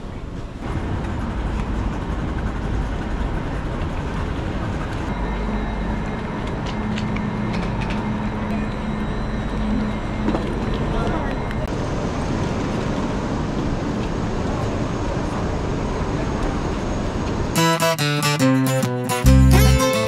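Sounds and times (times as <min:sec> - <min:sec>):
train rumbling: 0:00.0 - 0:18.0
low hum: 0:00.6 - 0:14.9.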